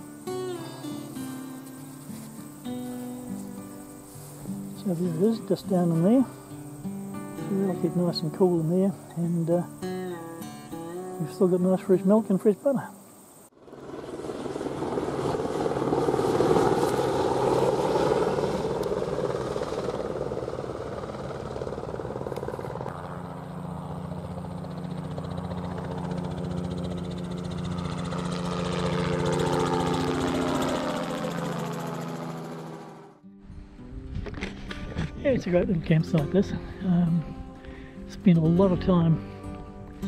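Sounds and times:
engine running: 0:12.7 - 0:40.0.

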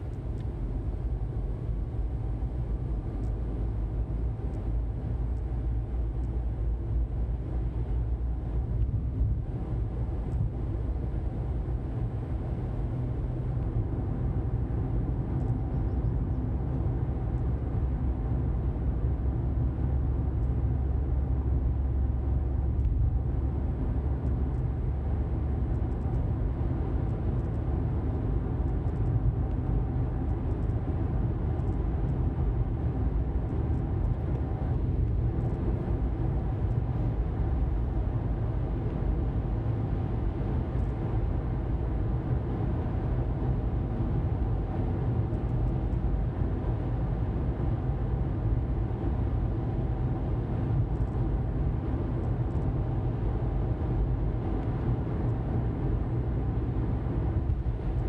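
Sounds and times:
car engine noise: 0:16.6 - 0:58.0.

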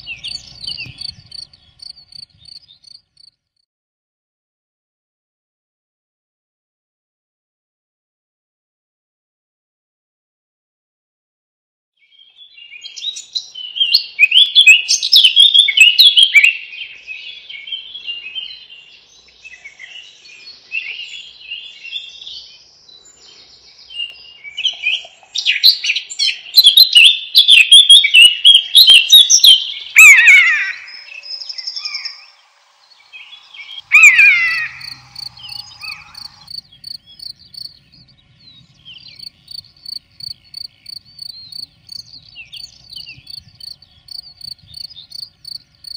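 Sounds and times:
songbirds singing: 0:00.0 - 0:03.3, 0:12.0 - 0:45.9
insect chirping: 0:00.0 - 0:03.4, 0:31.4 - 0:38.2, 0:38.9 - 0:45.9
downward-gliding bird call: 0:30.0 - 0:36.5.

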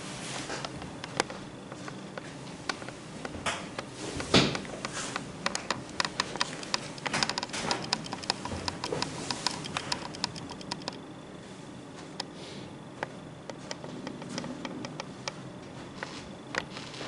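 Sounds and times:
light clicks and taps: 0:04.5 - 0:11.0.

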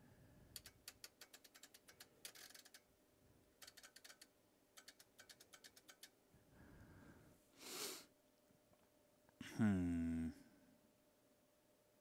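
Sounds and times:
rotary knob clicks: 0:00.5 - 0:02.9, 0:03.6 - 0:06.1.

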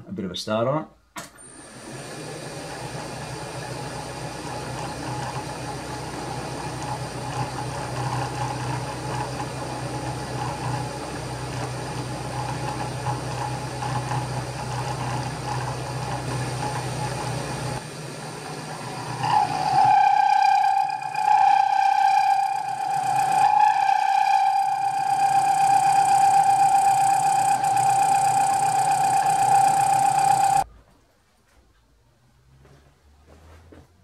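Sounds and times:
milling machine running: 0:01.4 - 0:30.6.

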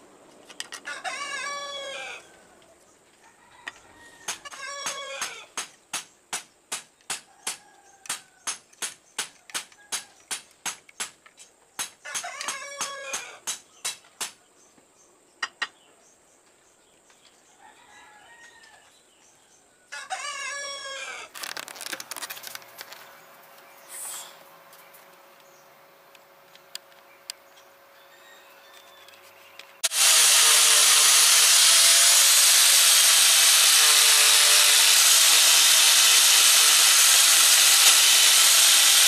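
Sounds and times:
rooster crowing: 0:00.8 - 0:02.6, 0:03.2 - 0:05.5, 0:17.6 - 0:18.9, 0:19.9 - 0:21.3, 0:27.9 - 0:29.0.

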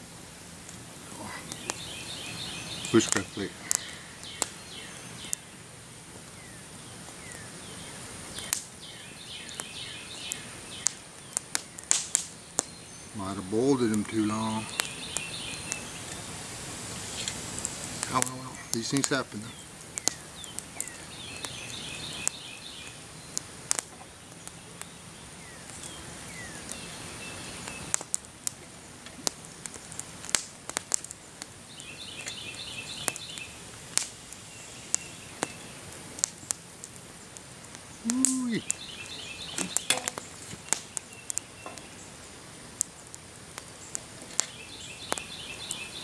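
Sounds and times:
campfire crackling: 0:00.0 - 0:46.0
songbird trilling: 0:01.5 - 0:05.5, 0:07.2 - 0:11.4, 0:12.6 - 0:16.4, 0:18.0 - 0:23.4, 0:31.7 - 0:33.6, 0:37.9 - 0:42.1
wooden stick in metal pot: 0:39.6 - 0:40.2.

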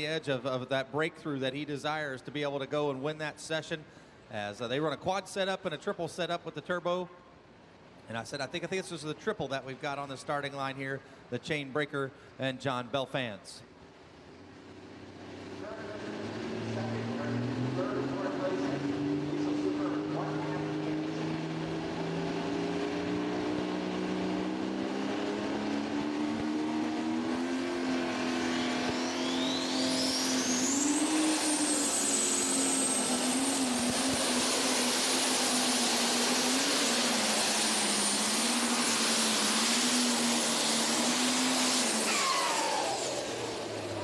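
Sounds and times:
diesel tractor engine under load: 0:14.5 - 0:44.0
high turbo whistle: 0:25.6 - 0:43.9.

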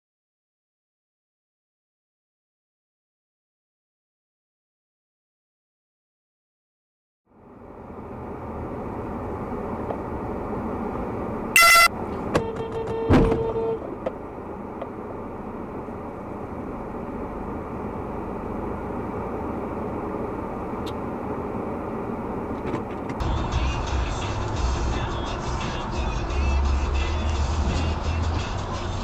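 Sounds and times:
car cabin hum: 0:07.5 - 0:29.0
car horn honking: 0:11.5 - 0:14.0
hard thud of car bump: 0:12.3 - 0:13.6.

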